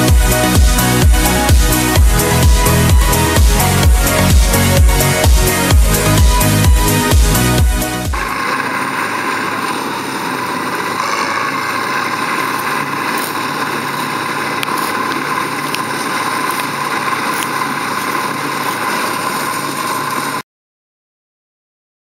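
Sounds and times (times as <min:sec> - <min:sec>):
combine harvester machinery drone: 0:00.0 - 0:20.4.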